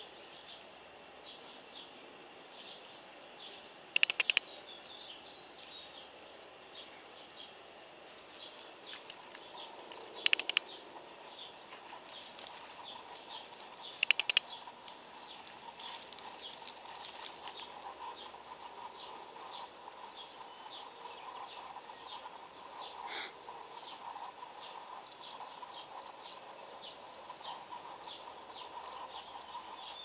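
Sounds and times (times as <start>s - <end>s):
small birds chirping: 0.0s - 30.0s
sharp clicks: 3.9s - 5.0s, 8.9s - 10.8s, 12.3s - 15.0s.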